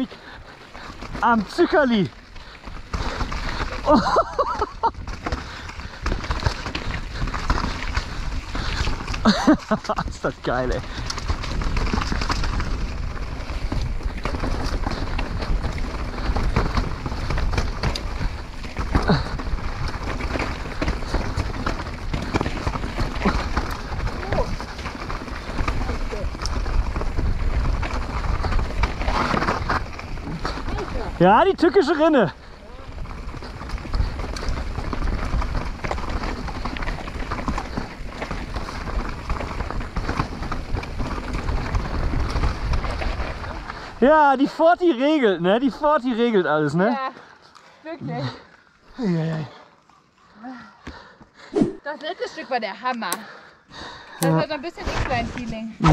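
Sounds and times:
tyres rolling over dirt and rock: 0:00.0 - 0:51.5, 0:53.7 - 0:55.9
bike knocks and rattles: 0:00.9 - 0:31.8, 0:32.7 - 0:43.6
wind buffeting microphone: 0:02.5 - 0:31.2.

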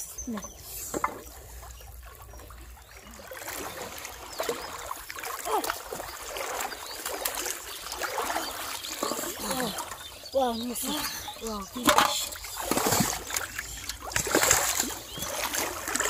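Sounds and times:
person wading through water: 0:00.0 - 0:16.0
fish thrashing at water surface: 0:11.7 - 0:16.0.

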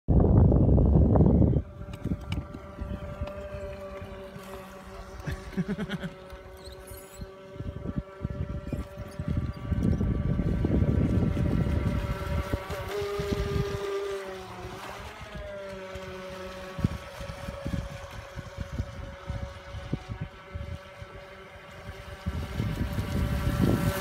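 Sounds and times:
wind buffeting microphone: 0:00.1 - 0:24.0
small electric motor whining: 0:00.5 - 0:24.0.

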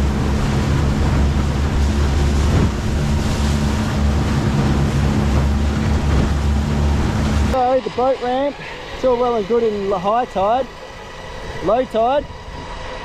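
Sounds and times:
engine running: 0:00.0 - 0:13.0
water noise: 0:00.0 - 0:13.0
wind on microphone: 0:00.0 - 0:13.0.

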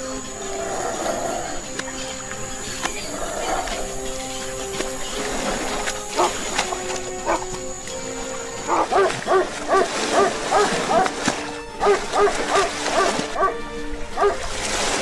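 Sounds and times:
background music: 0:00.0 - 0:15.0
dog barking rapidly: 0:06.2 - 0:06.4, 0:07.2 - 0:07.4, 0:08.7 - 0:11.2, 0:11.8 - 0:13.6, 0:14.2 - 0:14.4.

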